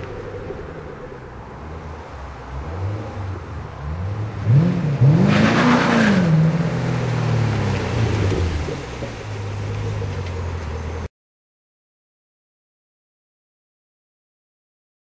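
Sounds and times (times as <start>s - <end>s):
car engine revving: 0.0s - 11.1s
car exhaust rumble: 0.0s - 11.1s.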